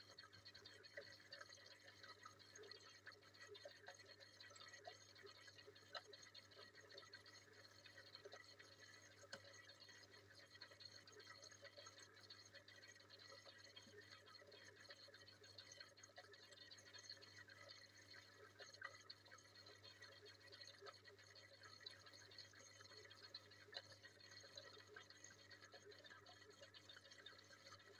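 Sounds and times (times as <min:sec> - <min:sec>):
aquarium water trickling: 0:00.0 - 0:27.9
small crackles: 0:00.0 - 0:27.9.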